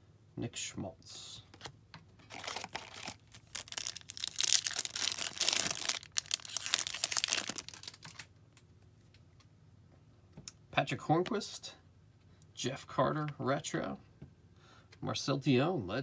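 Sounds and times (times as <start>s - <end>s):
wrapper tearing and crinkling: 2.3s - 8.3s.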